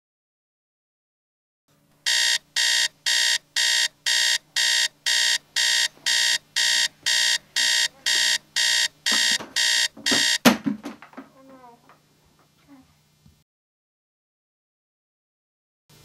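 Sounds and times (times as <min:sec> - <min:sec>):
alarm clock beeping: 0:02.1 - 0:10.5
knocks and rustling: 0:09.1 - 0:11.6.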